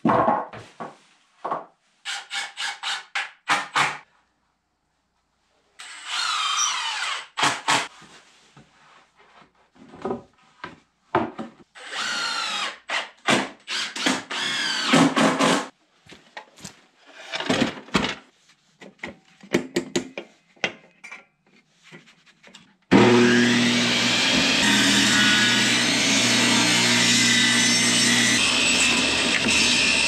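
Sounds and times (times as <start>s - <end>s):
power drill driving screws: 5.8s - 7.9s, 11.8s - 13.1s, 13.7s - 15.1s, 27.5s - 30.0s
table saw running: 22.9s - 30.0s.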